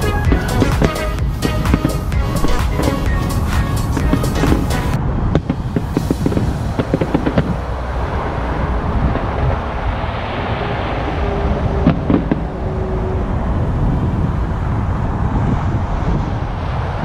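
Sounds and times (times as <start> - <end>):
distant fireworks bangs: 0.0 - 10.2, 11.8 - 12.6
steady low rumble: 0.0 - 17.0.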